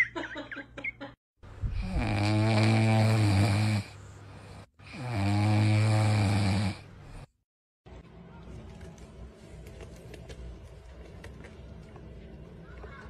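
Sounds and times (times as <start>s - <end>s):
dog snoring: 1.7s - 3.9s, 4.8s - 7.3s.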